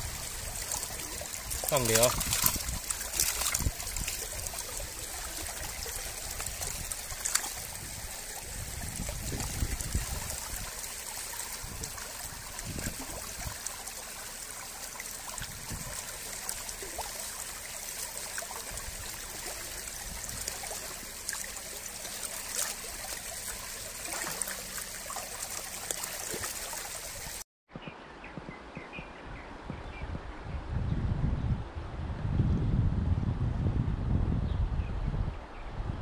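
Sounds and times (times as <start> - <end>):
stream water rushing and splashing: 0.0 - 27.4.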